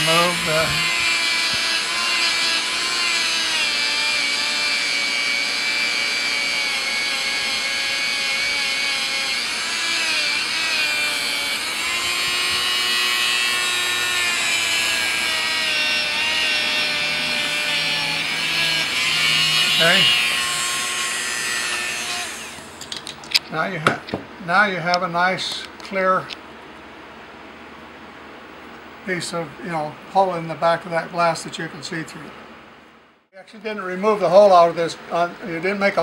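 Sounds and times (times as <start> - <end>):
rotary tool motor whine: 0.0 - 23.1.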